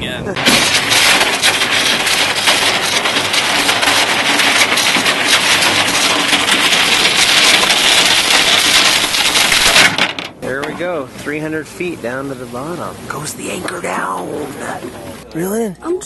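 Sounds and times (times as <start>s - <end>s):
anchor chain rattling: 0.4s - 10.5s.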